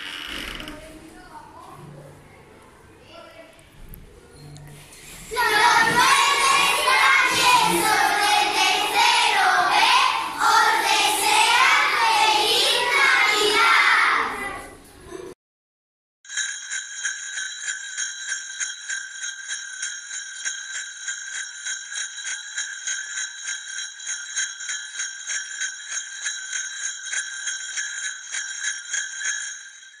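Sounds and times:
sleigh bells shaking: 5.4s - 11.5s, 16.3s - 30.0s.

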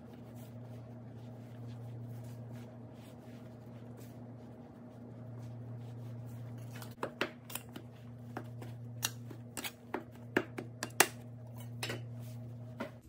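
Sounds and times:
steady low hum: 0.0s - 13.0s
knife tapping and scraping on stone: 7.0s - 12.1s.

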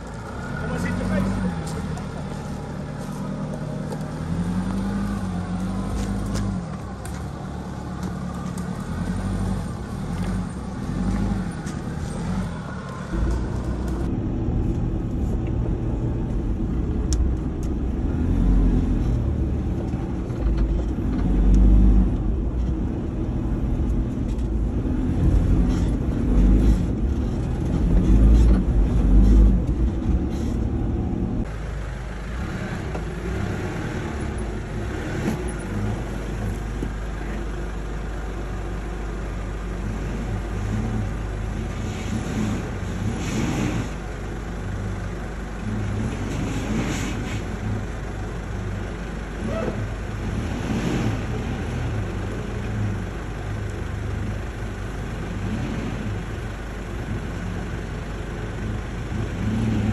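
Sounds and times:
engine revving: 0.0s - 31.5s, 32.1s - 36.8s, 39.8s - 44.1s, 49.3s - 54.3s, 58.6s - 59.9s.

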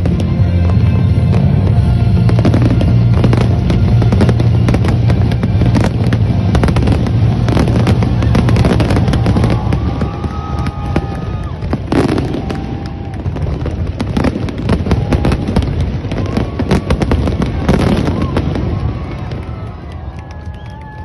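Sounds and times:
fireworks bursting with bangs: 0.0s - 20.8s.

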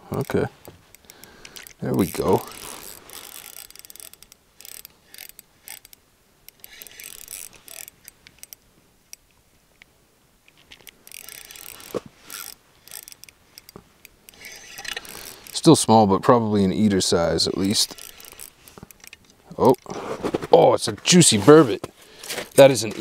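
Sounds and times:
fishing reel clicking: 0.2s - 9.2s, 10.7s - 15.7s, 17.5s - 19.9s.

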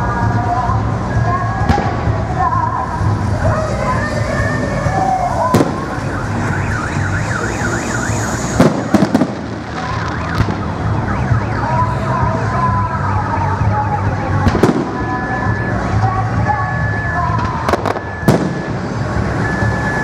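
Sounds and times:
firework whistles: 4.4s - 10.8s, 16.7s - 20.0s.

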